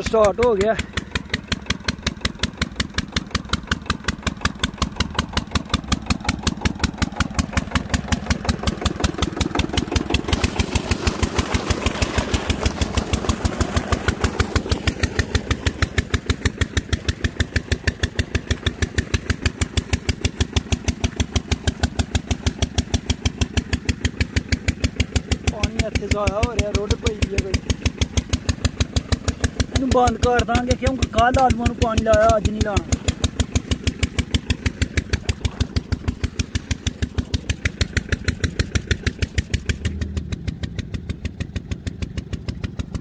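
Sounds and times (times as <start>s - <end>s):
water gushing from pipe: 0.0s - 40.0s
single-cylinder diesel engine running: 0.0s - 43.0s.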